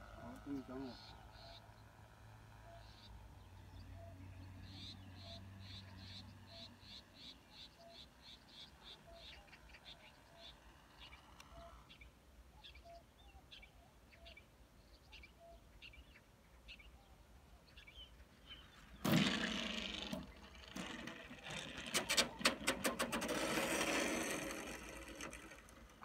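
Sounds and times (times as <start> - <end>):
faint bird chirps: 2.6 - 19.1
small wheels rattling on road: 19.0 - 26.0.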